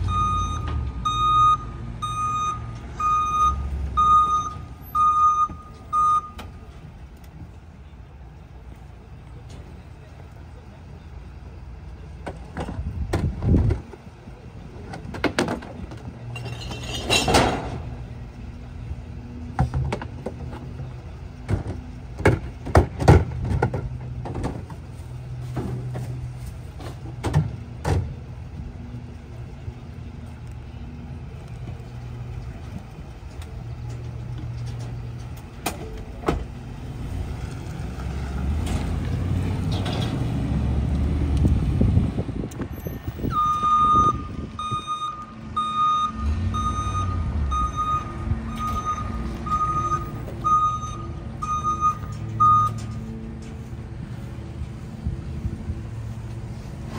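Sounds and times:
garbage truck engine: 0.0 - 56.9
bangs of carts and rubbish: 14.8 - 18.1, 19.4 - 28.2, 38.1 - 40.8.

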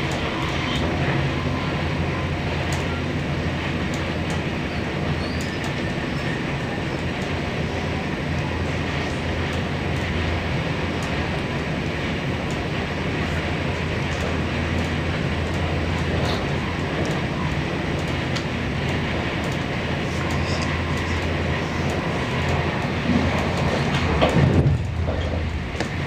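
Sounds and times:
train running inside carriage: 0.0 - 26.0.

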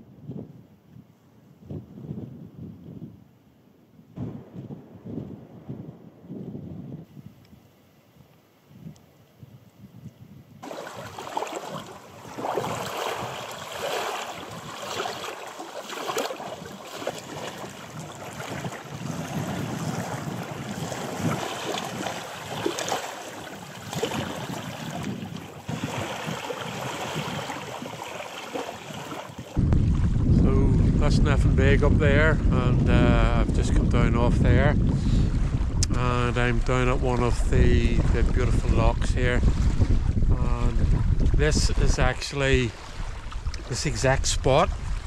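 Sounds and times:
wind buffeting microphone: 0.0 - 45.0
waves lapping on sandy shore: 10.6 - 30.2, 35.0 - 45.0.

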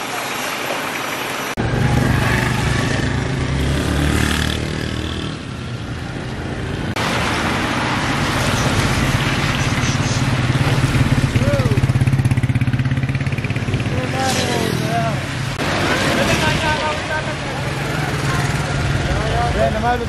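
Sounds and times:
vehicle engines running: 0.8 - 20.0
tyres hissing on wet road: 6.8 - 11.8.

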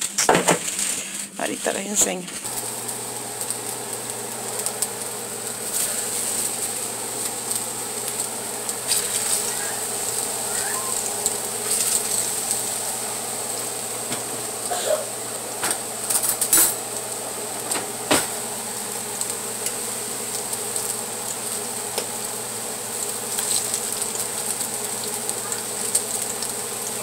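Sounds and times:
slices frying in oil: 0.0 - 27.0
oil crackling and popping: 2.4 - 27.0.

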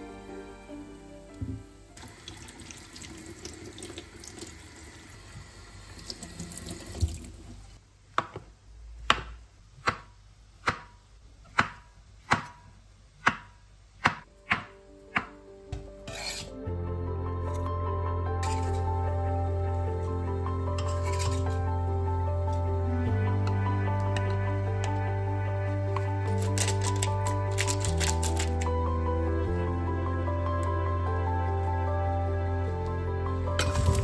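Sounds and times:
kitchen tap running: 2.0 - 7.8.

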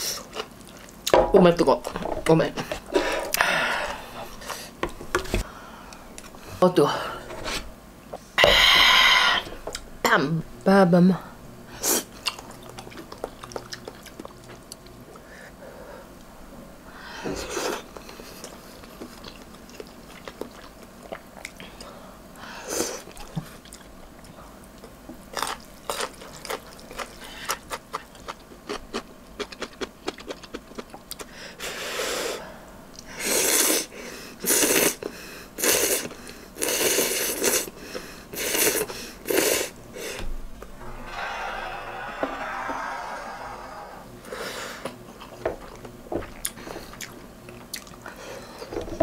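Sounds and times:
noodles being chewed: 12.2 - 15.2, 18.0 - 21.9, 23.0 - 31.3, 44.8 - 48.7.

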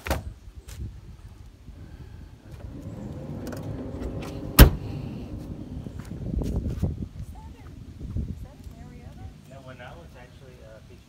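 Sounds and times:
low steady hum: 1.7 - 10.9
glass hatch slamming shut: 2.5 - 5.7.

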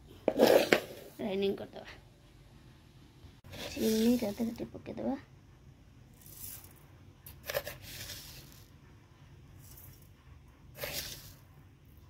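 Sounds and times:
sugar pouring into steel bowl: 3.6 - 4.5, 6.1 - 6.8, 10.8 - 11.5.

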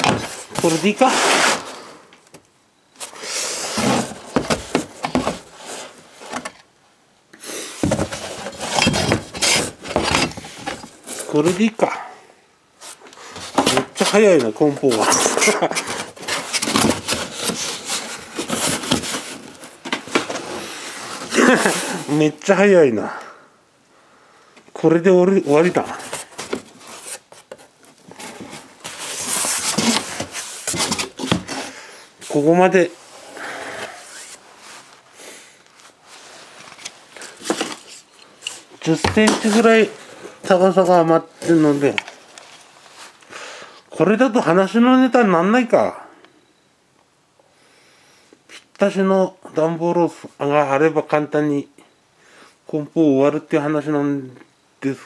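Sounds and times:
cardboard sliding and scraping: 0.0 - 2.0, 3.0 - 6.6, 7.6 - 11.6, 12.8 - 22.2, 25.6 - 35.0, 35.8 - 40.4
cardboard box rubbing and scraping: 0.2 - 1.8, 7.8 - 10.9.

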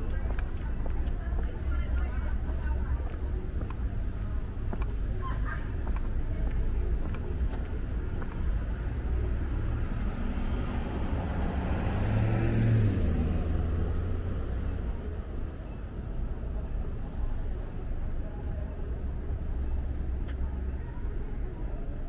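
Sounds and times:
low traffic rumble: 0.0 - 22.0
car passing close by: 10.7 - 14.3.

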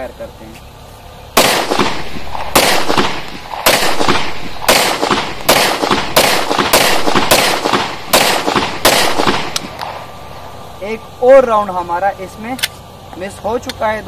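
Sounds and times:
pistol shots echoing: 1.4 - 10.7.

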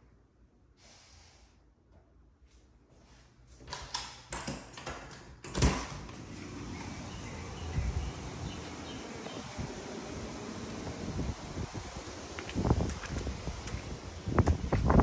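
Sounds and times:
outdoor noise: 3.6 - 15.0.

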